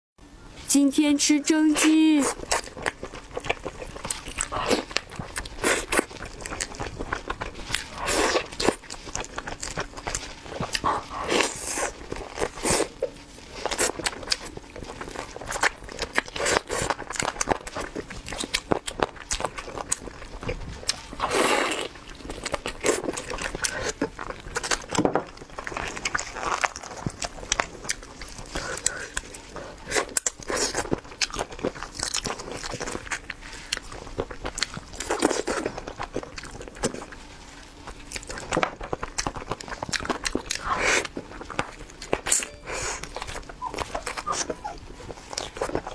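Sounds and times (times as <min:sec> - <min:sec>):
chewing and mouth sounds: 0:01.8 - 0:45.9.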